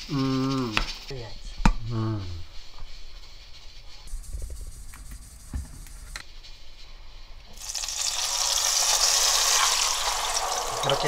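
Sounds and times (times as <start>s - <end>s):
sauce sizzling in hot oil: 7.5s - 11.0s.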